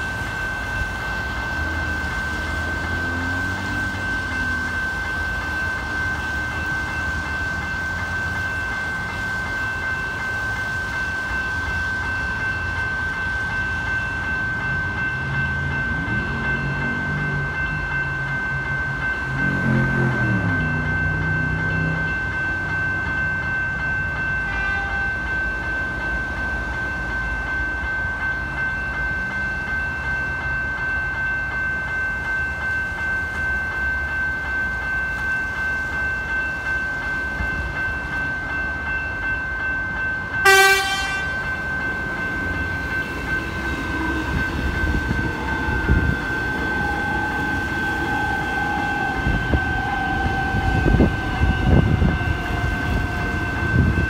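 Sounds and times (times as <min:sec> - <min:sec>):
electric train whine and rumble: 0:00.0 - 0:54.0
level crossing bell ringing: 0:00.0 - 0:54.0
train horn blast: 0:24.5 - 0:25.2, 0:40.4 - 0:41.4.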